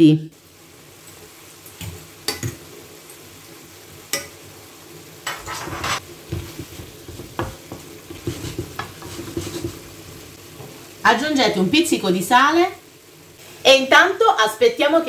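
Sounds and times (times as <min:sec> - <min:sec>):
gentle sizzle: 0:00.0 - 0:15.0
wooden spatula scraping frying pan: 0:05.2 - 0:10.8.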